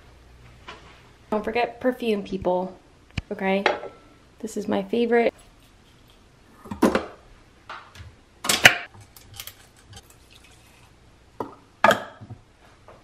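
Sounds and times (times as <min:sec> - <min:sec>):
kitchen items knocking and clattering: 0:06.6 - 0:07.2, 0:08.0 - 0:10.2, 0:11.4 - 0:12.4.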